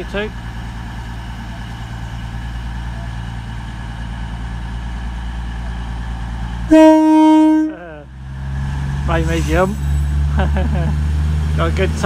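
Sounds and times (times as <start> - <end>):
diesel train engines droning: 0.0 - 12.0
loud train horn blast: 6.7 - 8.0.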